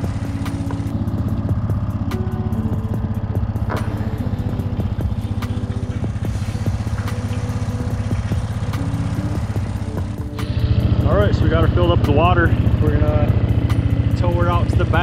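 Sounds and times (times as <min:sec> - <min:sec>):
atv engine idling: 0:00.0 - 0:15.0.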